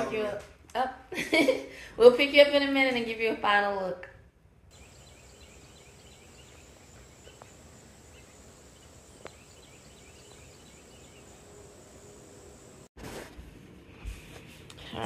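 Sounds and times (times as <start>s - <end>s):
insects droning: 4.7s - 12.9s
small chirps: 4.7s - 12.9s.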